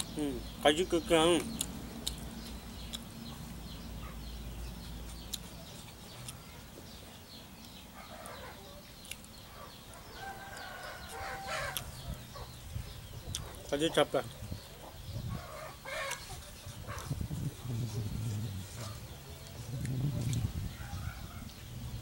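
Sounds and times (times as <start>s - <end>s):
chickens clucking: 0.0s - 22.0s.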